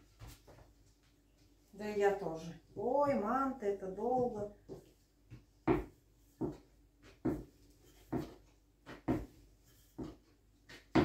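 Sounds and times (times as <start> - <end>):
dull knocks on dough: 5.6 - 7.5.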